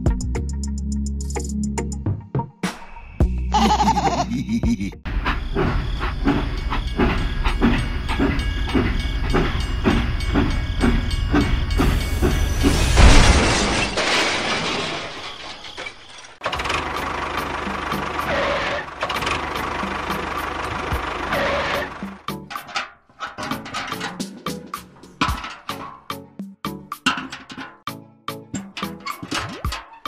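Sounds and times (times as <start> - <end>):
toy steam locomotive chugging: 5.1 - 12.8, 16.4 - 22.7.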